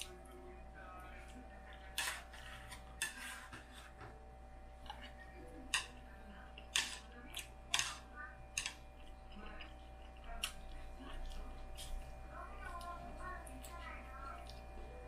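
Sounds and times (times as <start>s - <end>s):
chopsticks clicking against plate: 4.8s - 8.8s.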